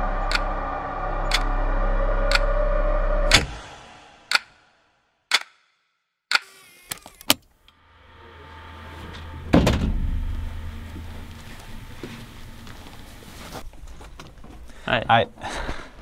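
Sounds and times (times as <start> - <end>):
low sustained drone: 0.0 - 5.0, 7.7 - 13.6
loud hit: 0.0 - 5.1, 7.8 - 10.9
rising swell: 0.0 - 5.2, 7.7 - 13.6.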